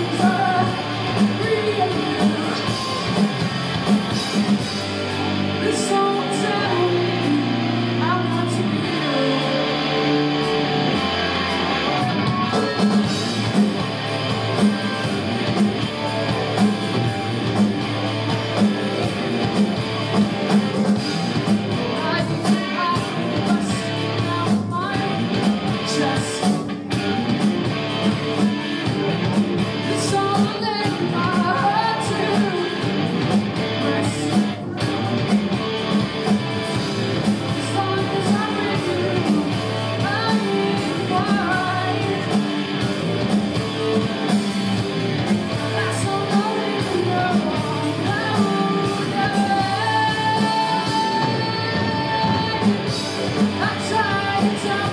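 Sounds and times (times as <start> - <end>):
person singing: 0.0 - 3.6, 5.5 - 11.0, 11.7 - 13.7, 21.4 - 26.8, 29.8 - 35.4, 37.2 - 42.9, 45.4 - 54.9
rock band playing: 0.0 - 54.9.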